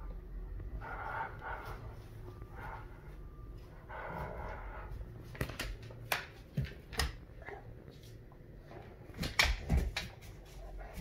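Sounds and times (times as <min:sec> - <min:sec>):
dog claws clicking on wooden floor: 0:05.4 - 0:07.2.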